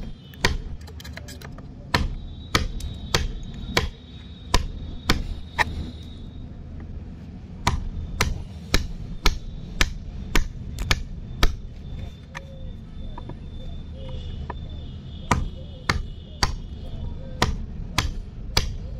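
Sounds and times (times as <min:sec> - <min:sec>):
chisel struck into wood: 0:00.0 - 0:00.8, 0:01.9 - 0:05.4, 0:07.6 - 0:11.6, 0:15.3 - 0:16.7, 0:17.4 - 0:18.8.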